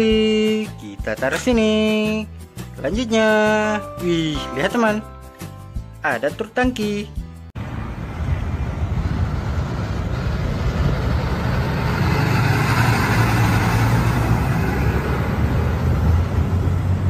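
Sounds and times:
road noise: 7.3s - 17.0s
truck engine rumble: 7.6s - 17.0s.

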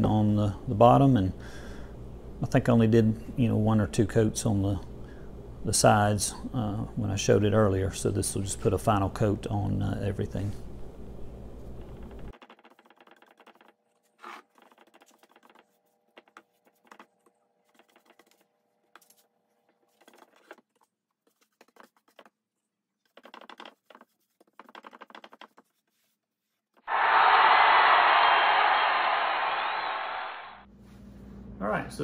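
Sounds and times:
paintbrush swishing on wood: 25.5s - 26.8s
loud steady rushing noise: 26.9s - 30.6s.

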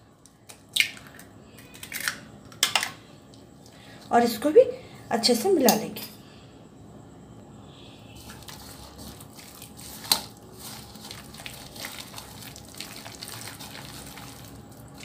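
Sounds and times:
wet squishing: 8.2s - 15.0s.

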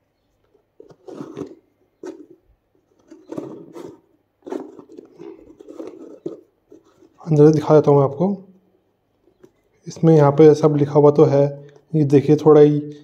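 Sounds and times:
shoe rustling and scraping: 0.8s - 7.3s.

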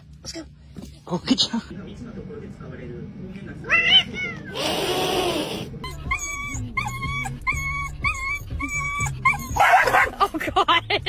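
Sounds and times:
cat hissing: 3.7s - 5.8s
dog whimpering: 4.5s - 10.1s.

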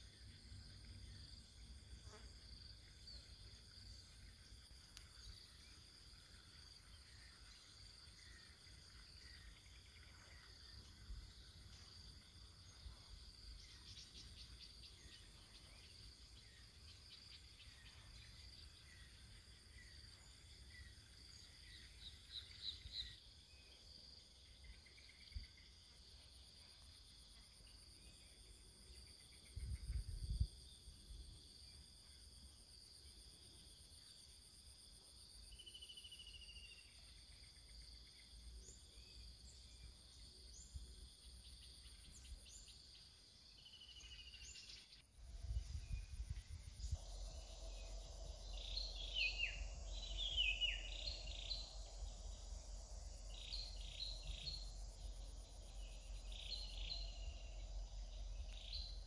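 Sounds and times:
insect chorus chirring: 0.0s - 59.0s
low rumble on microphone: 45.2s - 59.0s.

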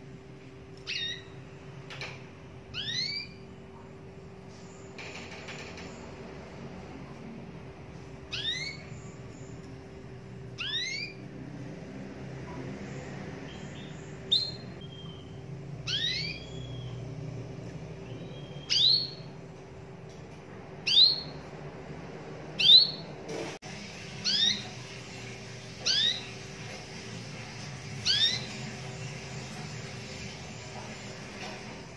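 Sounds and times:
canary call notes: 10.6s - 11.2s.

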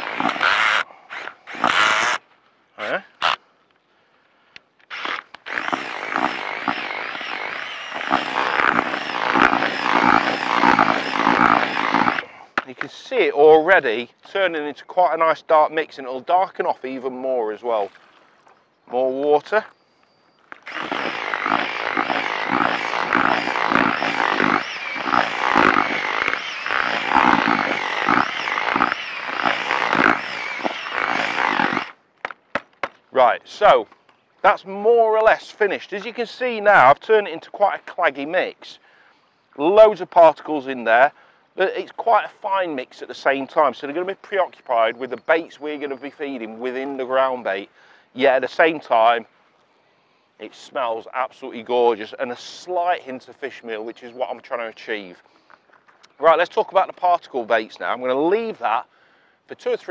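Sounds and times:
drill motor whine: 0.0s - 2.2s, 4.9s - 12.3s, 20.6s - 32.0s
whisk churning wet bait: 5.5s - 12.2s, 20.7s - 31.9s.

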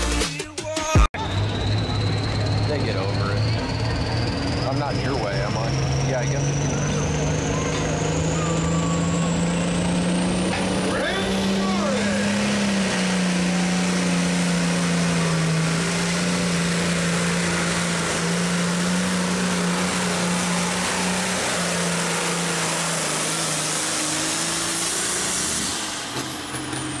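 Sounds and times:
tractor diesel engine under load: 1.0s - 27.0s
high turbo whistle: 1.2s - 10.2s.

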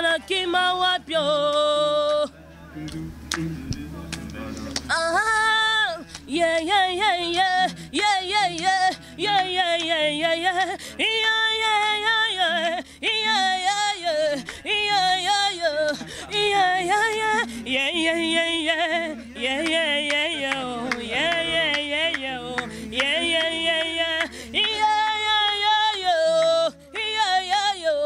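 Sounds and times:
woman singing unaccompanied: 0.0s - 2.4s, 4.0s - 28.0s.

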